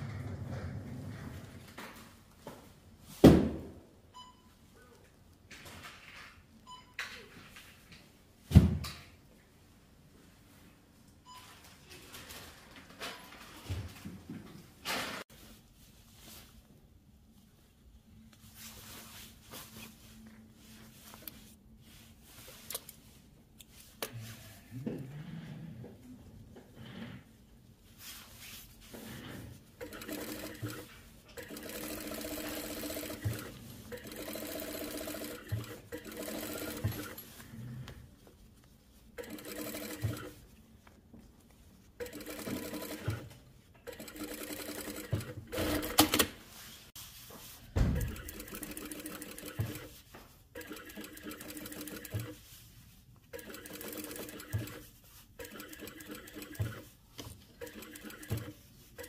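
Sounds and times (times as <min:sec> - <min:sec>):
sewing machine stitching: 0:29.2 - 0:37.3, 0:39.2 - 0:40.4, 0:42.0 - 0:46.3, 0:48.0 - 0:50.0, 0:50.6 - 0:52.5, 0:53.3 - 0:59.0.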